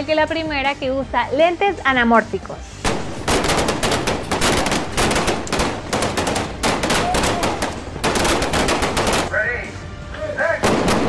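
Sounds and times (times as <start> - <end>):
rapid automatic gunfire: 2.8 - 9.3.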